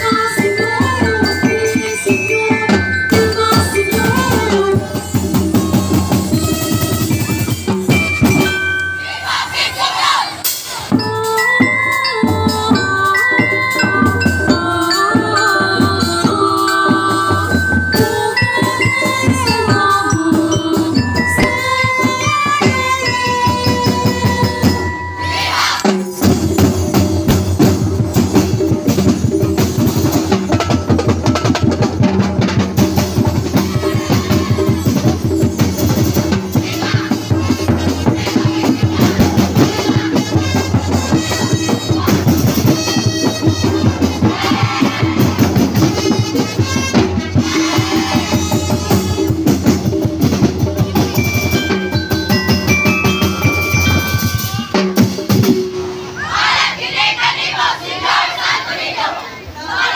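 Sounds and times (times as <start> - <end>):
fast driving drum beat: 0.0 - 8.6, 13.9 - 24.8, 25.8 - 55.7
street-dance music: 0.0 - 12.5, 17.9 - 26.4.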